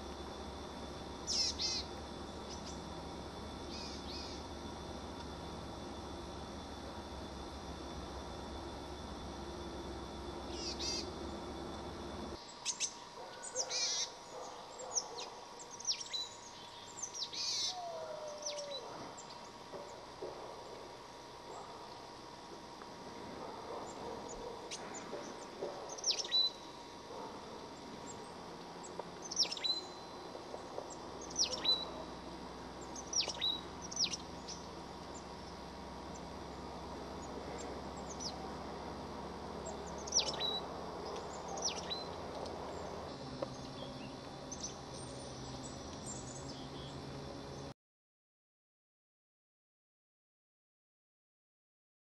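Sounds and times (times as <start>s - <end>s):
small bird call notes: 1.2s - 2.9s, 3.6s - 4.5s, 10.4s - 11.5s, 12.5s - 19.6s, 23.8s - 26.7s, 29.2s - 30.2s, 30.9s - 32.1s, 32.8s - 35.3s, 39.6s - 47.0s.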